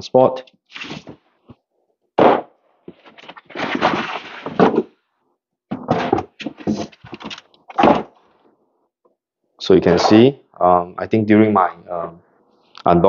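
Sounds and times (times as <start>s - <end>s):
cardboard scraping and rustling: 0.7s - 1.2s, 2.9s - 4.9s, 5.8s - 8.1s.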